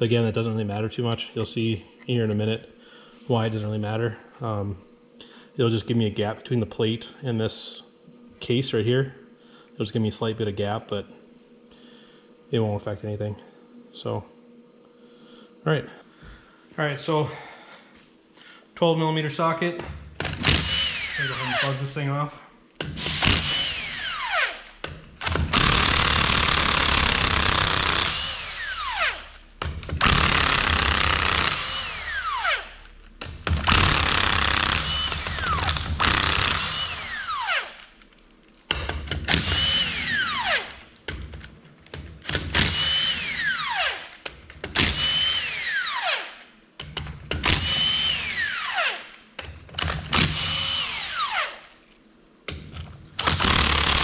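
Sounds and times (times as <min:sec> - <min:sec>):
impact wrench bursts: 0:20.2 - 0:21.9, 0:22.8 - 0:38.1, 0:38.7 - 0:49.2, 0:49.8 - 0:51.8, 0:53.2 - 0:54.0.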